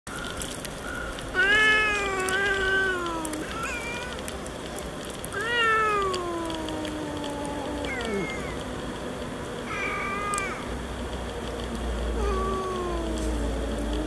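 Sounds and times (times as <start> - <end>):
cat yowling: 1.3 - 4.2, 5.3 - 8.6, 9.7 - 10.7, 12.2 - 14.0.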